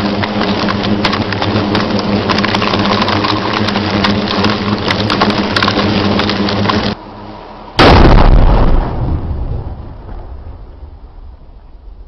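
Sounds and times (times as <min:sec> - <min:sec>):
rushing noise with crackles: 0:00.0 - 0:12.0
loud rock blast explosion: 0:07.8 - 0:11.0.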